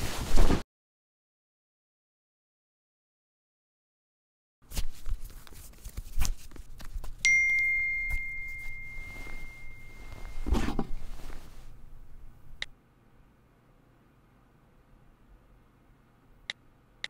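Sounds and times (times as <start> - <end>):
phone notification chime: 7.3 - 10.6
phone picked up thud and rustle: 9.3 - 11.4.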